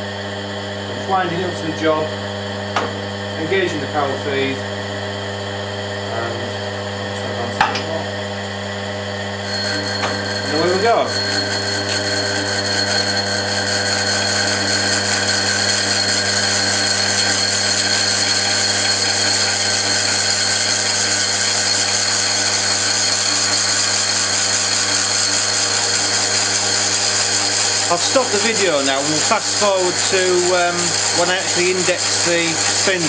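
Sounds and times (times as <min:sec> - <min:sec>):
milling machine cutting metal: 0:00.6 - 0:33.0.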